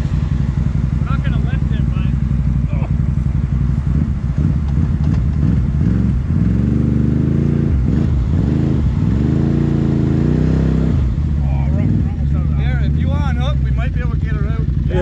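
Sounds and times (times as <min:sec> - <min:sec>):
off-road vehicle engine revving: 0:00.0 - 0:15.0.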